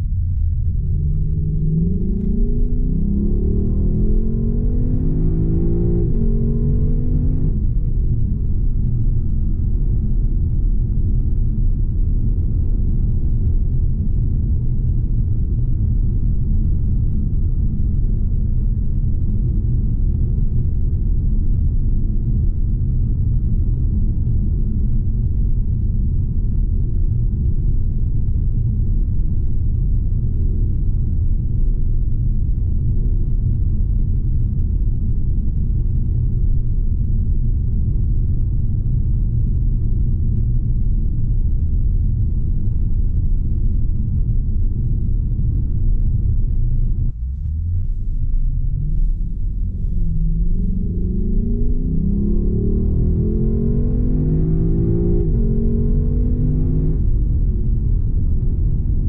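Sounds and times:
road and wind noise: 0:00.0 - 0:59.0
car engine accelerating: 0:00.1 - 0:20.3, 0:47.0 - 0:59.0.

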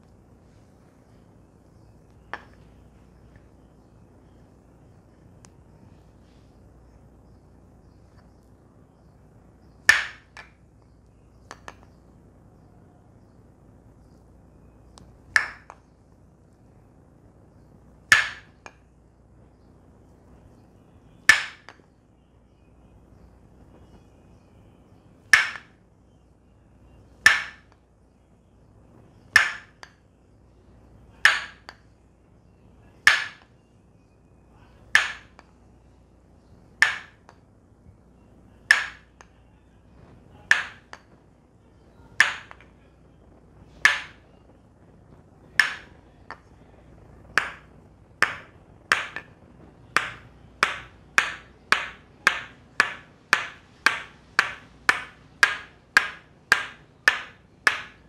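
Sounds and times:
wooden mallet knocking wood: 0:02.2 - 0:02.6, 0:09.8 - 0:10.6, 0:15.3 - 0:15.8, 0:18.1 - 0:18.8, 0:21.2 - 0:21.8, 0:25.3 - 0:25.8, 0:27.2 - 0:27.8, 0:29.3 - 0:30.0, 0:31.2 - 0:31.8, 0:33.1 - 0:33.5, 0:34.9 - 0:35.5, 0:36.8 - 0:37.4, 0:38.6 - 0:39.3, 0:40.5 - 0:41.1, 0:42.2 - 0:42.7, 0:43.7 - 0:44.3, 0:45.5 - 0:46.5, 0:47.4 - 0:58.0.

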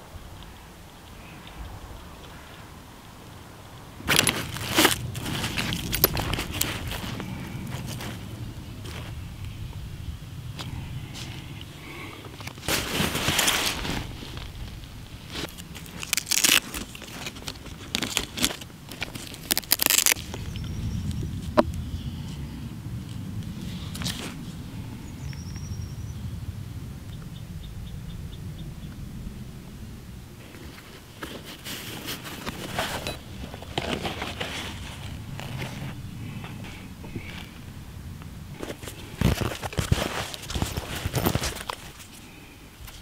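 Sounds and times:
rustling and crackling handling noise: 0:04.0 - 0:09.8, 0:10.5 - 0:22.4, 0:23.0 - 0:24.6, 0:30.4 - 0:43.0
buckles clicking and scraping: 0:04.1 - 0:09.1, 0:15.4 - 0:20.3, 0:30.5 - 0:37.5, 0:38.6 - 0:42.2.

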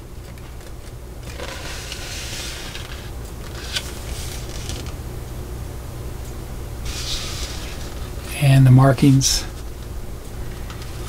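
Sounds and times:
steady low hum: 0:00.0 - 0:11.0
paper rustling and sliding: 0:01.2 - 0:05.0, 0:06.9 - 0:08.0.

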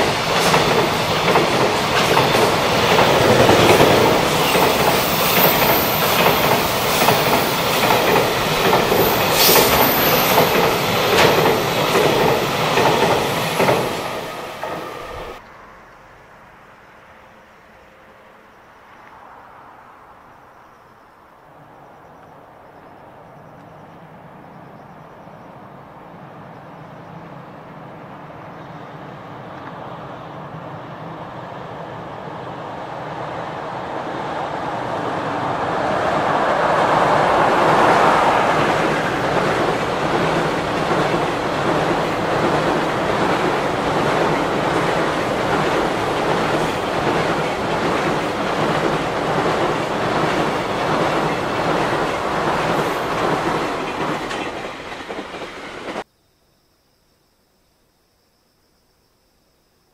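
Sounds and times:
train wheels clattering over rail joints: 0:00.0 - 0:15.4, 0:38.5 - 0:56.0
electric locomotive passing: 0:00.0 - 0:20.3, 0:21.4 - 0:56.1.

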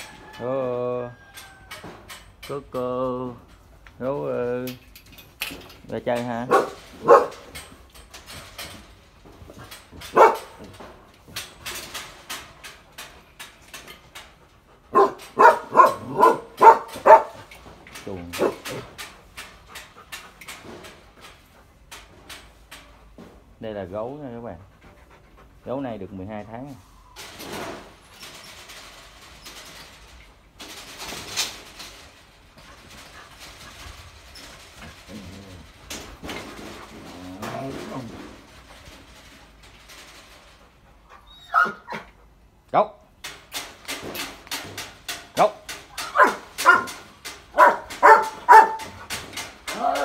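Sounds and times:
dog rattling metal cage bars: 0:00.0 - 0:23.9, 0:27.2 - 0:42.4, 0:43.1 - 0:50.0
dog barking: 0:06.5 - 0:07.4, 0:10.1 - 0:10.5, 0:14.9 - 0:17.4, 0:46.2 - 0:46.9, 0:47.6 - 0:49.0.

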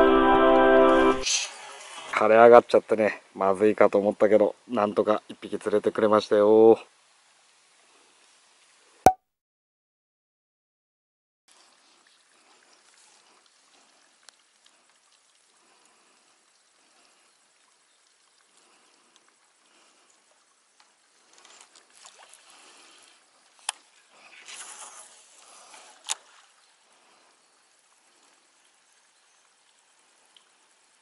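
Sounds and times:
trickling water: 0:01.4 - 0:09.0, 0:11.5 - 0:31.0
fishing line whirring off spool: 0:24.3 - 0:26.4.

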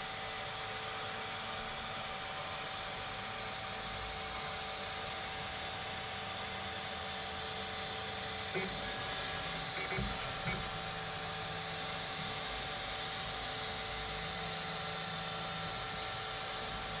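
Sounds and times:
stepper motors whining: 0:08.6 - 0:11.2.

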